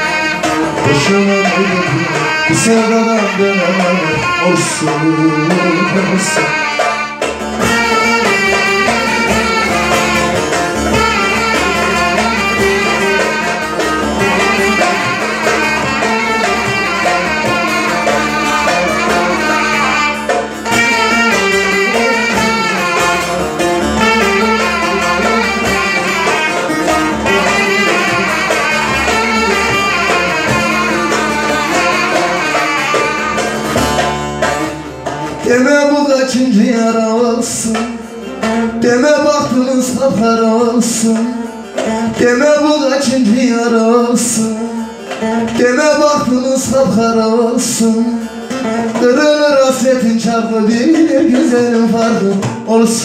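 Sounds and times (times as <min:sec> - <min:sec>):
violin melody: 0:00.0 - 0:35.5
wind instrument: 0:00.0 - 0:50.0
hand drum rhythm: 0:00.0 - 0:53.0
plucked lute melody: 0:00.0 - 0:53.0.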